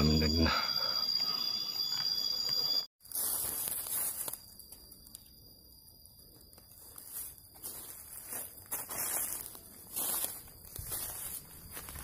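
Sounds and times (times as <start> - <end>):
high insect drone: 0.0 - 12.0
footsteps through leaf litter: 3.0 - 4.5, 6.8 - 12.0.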